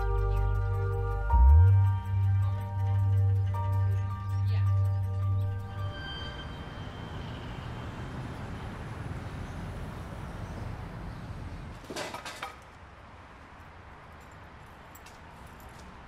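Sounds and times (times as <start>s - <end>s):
city traffic rumble: 0.0s - 16.0s
light clinks: 14.1s - 16.0s.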